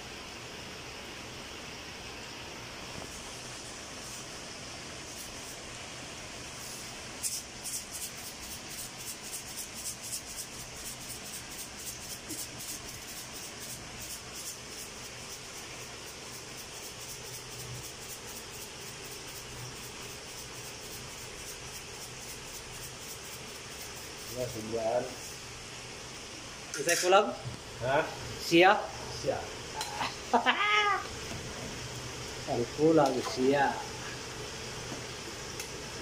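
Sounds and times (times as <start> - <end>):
stew simmering with a hiss: 0.0 - 36.0
shaker rattling: 6.6 - 25.4.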